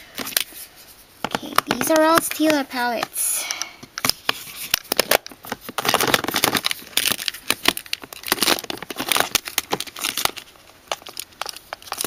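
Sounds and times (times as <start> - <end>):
packaging crinkling and rustling: 4.0 - 12.0.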